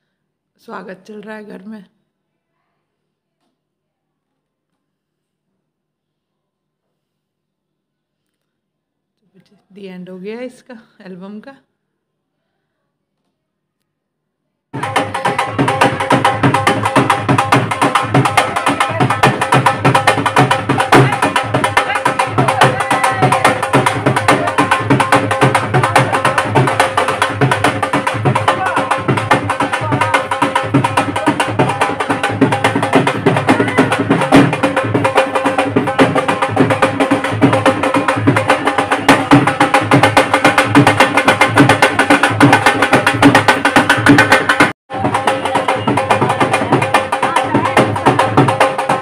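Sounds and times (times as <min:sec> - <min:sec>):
people's voices: 0:14.8 - 0:39.7, 0:44.9 - 0:49.0
dhol drum beating: 0:14.8 - 0:49.0.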